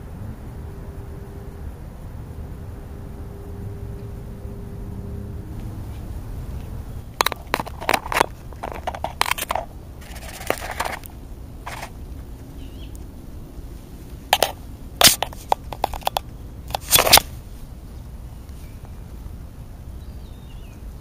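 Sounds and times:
low steady rumble: 0.0s - 21.0s
vulture pecking and crunching food: 7.1s - 13.1s, 13.8s - 17.6s.

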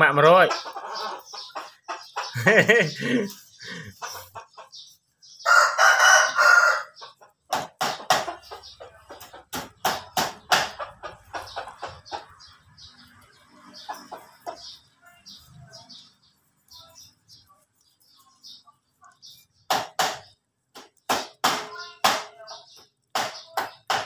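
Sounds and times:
rooster crowing: 5.4s - 7.0s.

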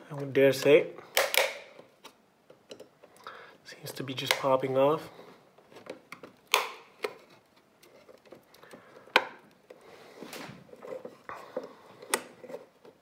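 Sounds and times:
plastic clips clicking loose: 1.1s - 1.8s.

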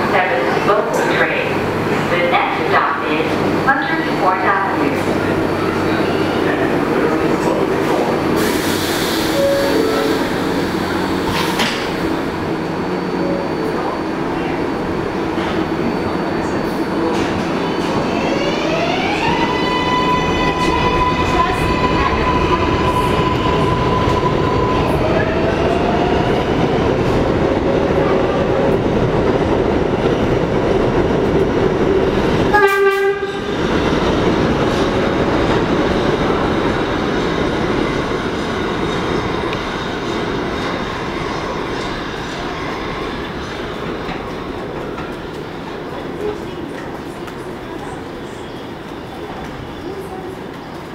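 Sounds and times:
train wheels rumbling on rail: 0.0s - 50.9s
train horn blast: 32.5s - 33.5s.

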